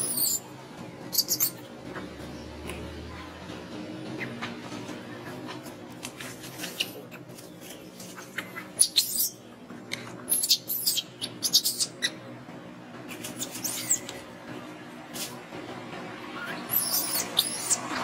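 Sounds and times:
infant monkey squeaking: 0.0s - 0.4s, 1.1s - 1.7s, 8.2s - 9.4s, 10.3s - 12.2s, 13.2s - 14.2s, 16.4s - 18.0s.

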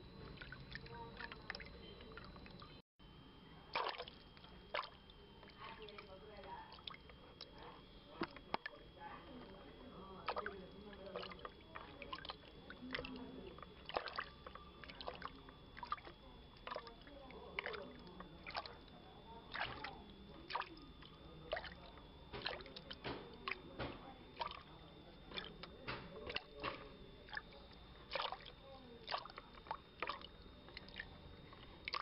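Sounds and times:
sharp knocks and splashes: 3.7s - 6.0s, 13.8s - 17.0s, 17.6s - 18.8s, 19.5s - 20.7s, 21.5s - 24.7s, 25.3s - 27.4s, 28.1s - 31.1s
water lapping against boat: 3.7s - 32.0s.

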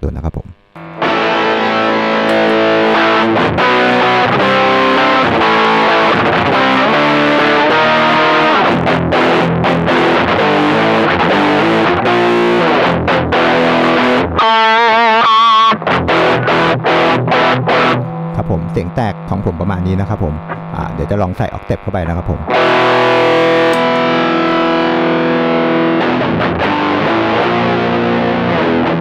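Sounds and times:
distorted electric guitar: 0.0s - 29.0s.

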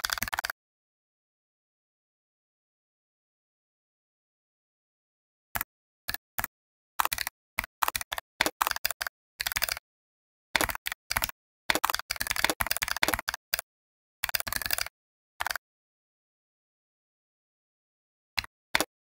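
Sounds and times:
computer keyboard typing: 0.0s - 0.5s, 5.6s - 9.8s, 10.6s - 15.6s.

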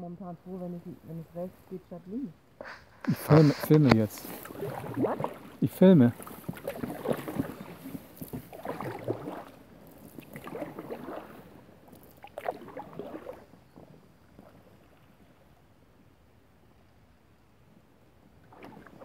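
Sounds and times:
kayak paddles splashing in water: 2.6s - 16.0s, 18.2s - 19.0s.

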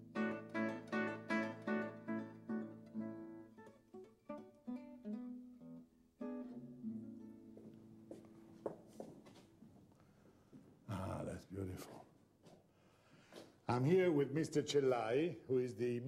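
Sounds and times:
acoustic guitar plucking: 0.0s - 8.6s.

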